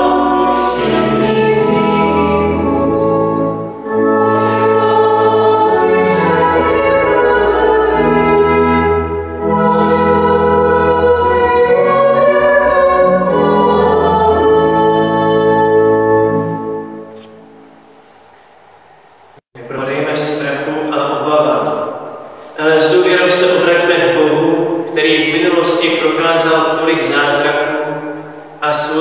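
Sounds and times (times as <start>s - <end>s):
voices singing a hymn: 0.0s - 17.2s
organ chords: 0.0s - 29.0s.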